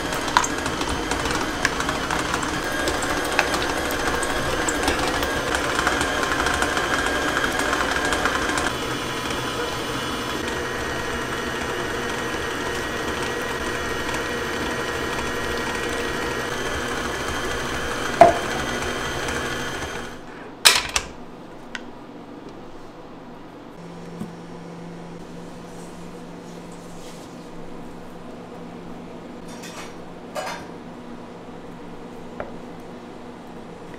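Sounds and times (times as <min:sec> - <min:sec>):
small electric motor running: 0:01.8 - 0:20.2.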